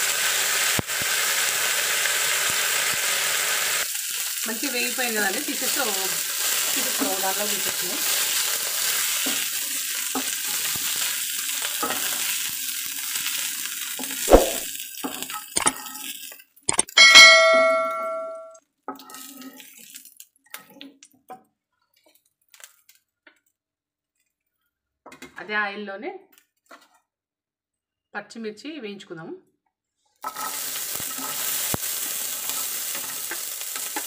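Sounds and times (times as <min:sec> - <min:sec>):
oil sizzling in a frying pan: 0:00.0 - 0:16.7, 0:18.7 - 0:21.3, 0:30.2 - 0:34.0
bright chime sound effect: 0:17.0 - 0:18.6.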